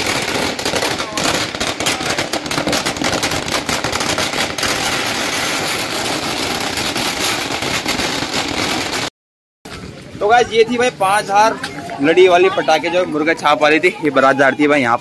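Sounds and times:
firecracker string crackling: 0:00.0 - 0:09.1
loud firecracker reports: 0:00.0 - 0:09.1.

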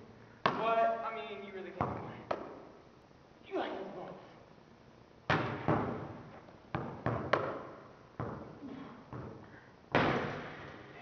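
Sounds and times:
basketball bouncing on hard floor: 0:01.8 - 0:02.6, 0:05.3 - 0:10.7.

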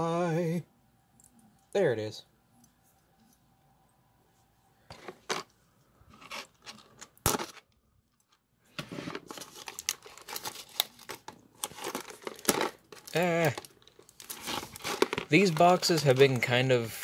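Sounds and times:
plastic shrink wrap tearing: 0:09.2 - 0:16.4.

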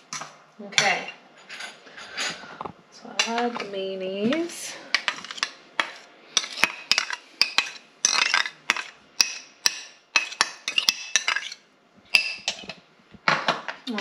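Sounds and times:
metal spoon scraping ceramic bowl: 0:05.0 - 0:09.0.

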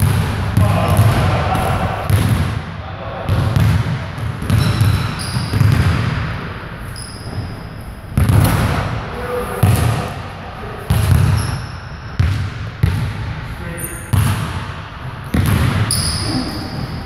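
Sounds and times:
basketballs bouncing on hardwood floor: 0:00.0 - 0:02.6, 0:03.3 - 0:06.4, 0:08.1 - 0:08.8, 0:09.6 - 0:10.1, 0:10.9 - 0:13.4, 0:14.1 - 0:14.6, 0:15.3 - 0:16.9
shoe squeaks: 0:04.5 - 0:05.6, 0:06.8 - 0:08.0, 0:11.3 - 0:12.2, 0:13.7 - 0:14.1, 0:15.9 - 0:17.0.

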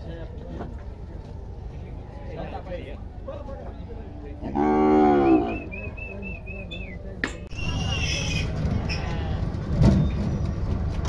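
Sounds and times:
cow bawling: 0:04.4 - 0:05.7.

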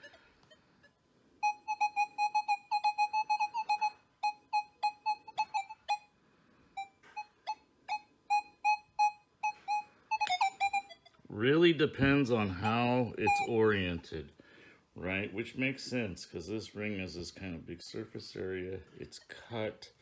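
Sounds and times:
metal detector beeps: 0:06.8 - 0:11.0, 0:13.2 - 0:13.6.

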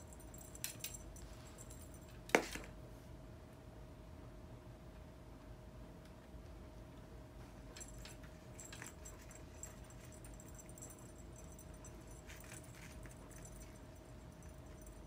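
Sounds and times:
small jingle bell tinkling: 0:00.0 - 0:02.2, 0:07.6 - 0:15.0.

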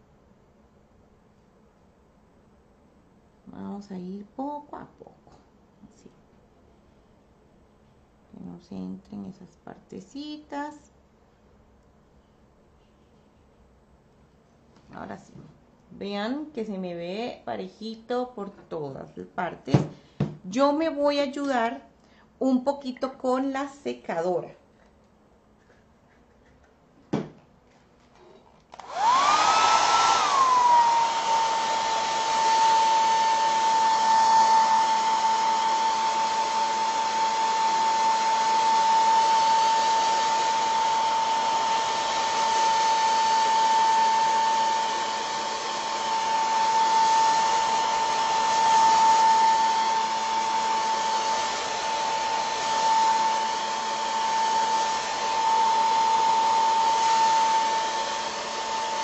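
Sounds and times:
hair dryer motor whining: 0:28.7 - 0:59.0
rush of blowing air: 0:28.8 - 0:59.0.

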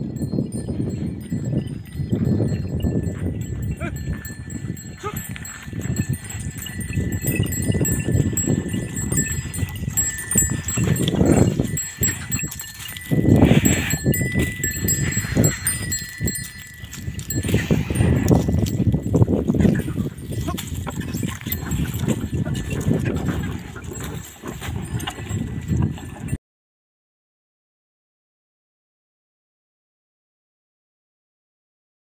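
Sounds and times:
cattle neck bells ringing: 0:00.0 - 0:26.4.

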